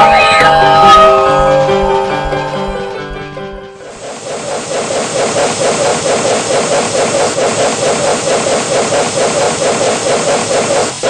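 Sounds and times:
steam locomotive chuffing: 3.8s - 11.0s.

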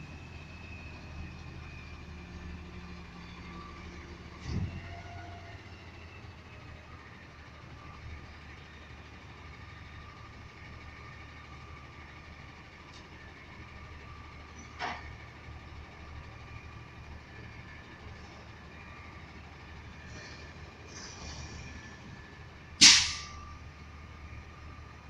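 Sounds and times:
distant garbage truck engine: 0.0s - 25.0s
sharp metal clank: 22.8s - 23.4s.

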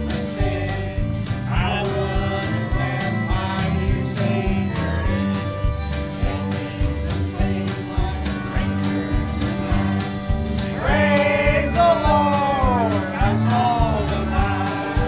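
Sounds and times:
group singing a gospel hymn: 0.0s - 15.0s
steady beat: 1.6s - 15.0s
louder voice with wavering pitch: 10.7s - 15.0s.

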